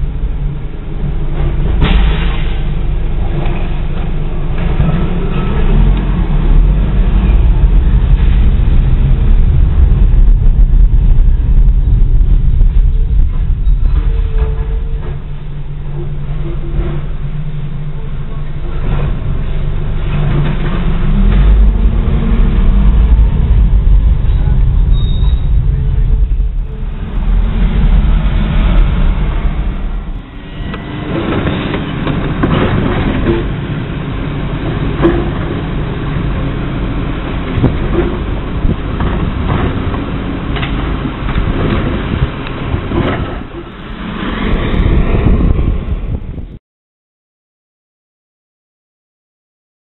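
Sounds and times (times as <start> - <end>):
diesel truck engine rumble: 0.0 - 46.6
road noise: 0.0 - 46.6
rushing: 21.0 - 31.4.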